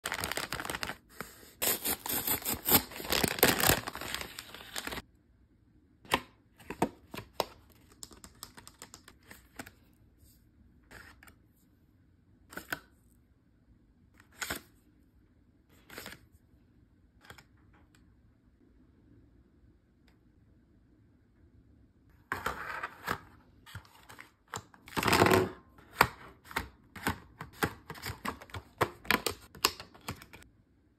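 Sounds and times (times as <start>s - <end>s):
paper tearing and crinkling: 0.0s - 5.0s.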